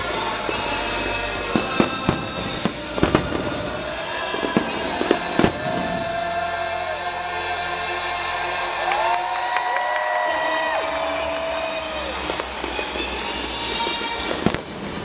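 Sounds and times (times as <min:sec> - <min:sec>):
fireworks bangs and crackles: 0:00.0 - 0:07.0, 0:10.2 - 0:15.0
music playing: 0:00.0 - 0:15.0.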